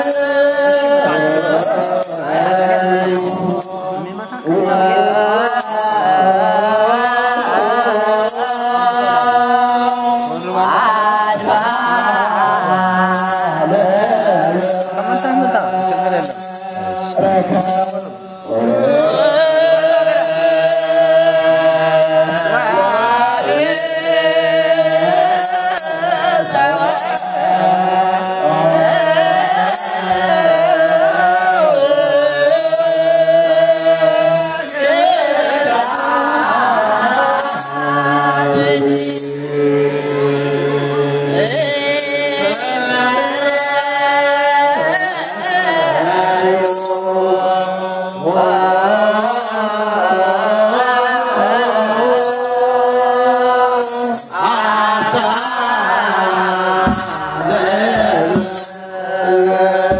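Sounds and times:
sistrum rattles: 0.0 - 4.1, 5.4 - 22.8
group chanting a hymn: 0.0 - 59.9.

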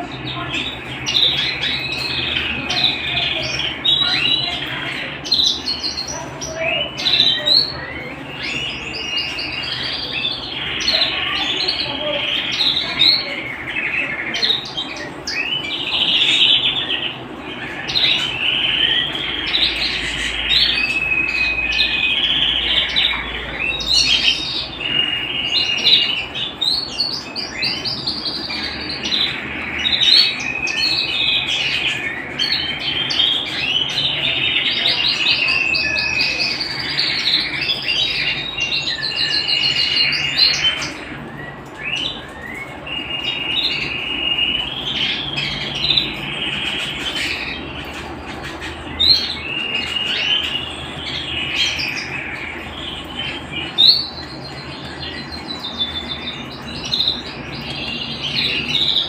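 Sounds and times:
canary singing trills: 0.0 - 59.0.

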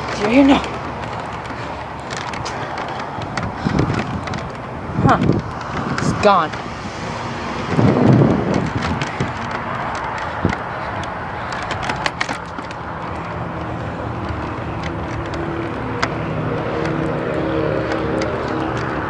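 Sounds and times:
wind rushing on microphone: 0.8 - 19.0
camera handling clicks and knocks: 0.9 - 6.0, 7.6 - 17.2.

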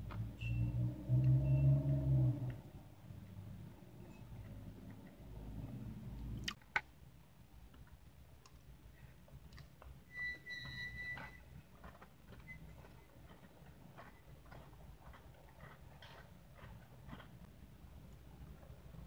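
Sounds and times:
thin whistle-like squeak: 0.4 - 1.9, 10.1 - 11.5, 12.4 - 13.1.

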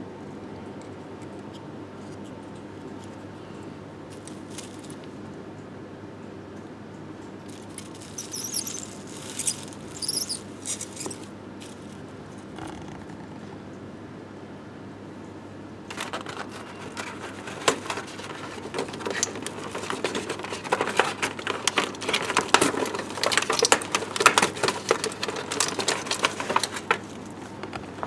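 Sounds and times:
plastic toy pieces squeaking: 7.6 - 11.3.

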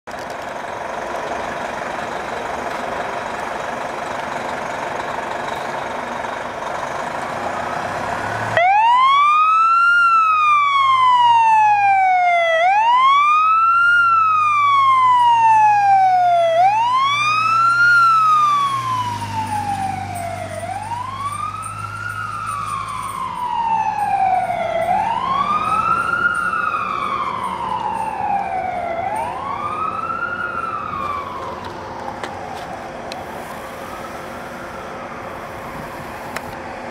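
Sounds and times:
low engine rumble: 0.1 - 8.8, 10.6 - 36.9
fire engine siren wailing: 0.3 - 36.9.

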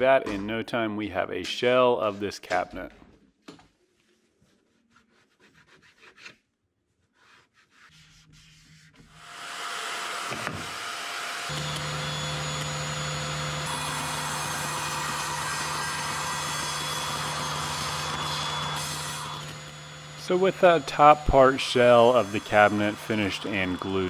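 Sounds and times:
table saw running: 9.2 - 24.0
dust extractor hiss: 11.1 - 24.0.

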